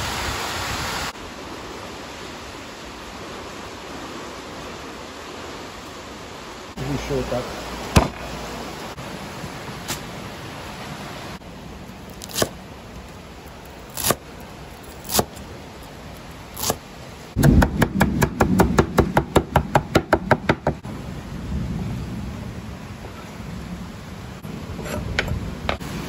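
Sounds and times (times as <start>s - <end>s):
knife scraping wooden board: 24.7s - 25.8s.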